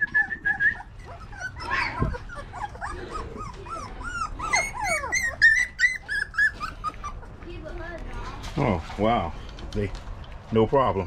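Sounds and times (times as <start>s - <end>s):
puppies whimpering and yipping: 0.0s - 7.6s.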